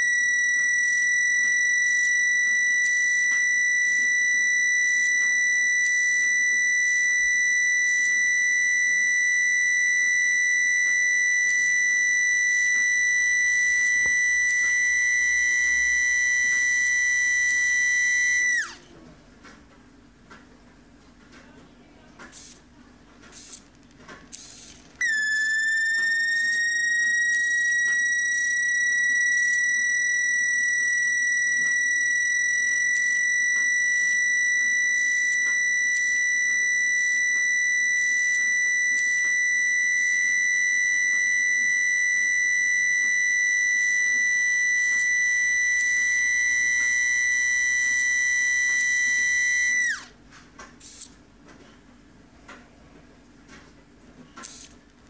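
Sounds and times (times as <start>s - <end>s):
electric motor whining: 0.0s - 18.8s, 25.0s - 50.1s.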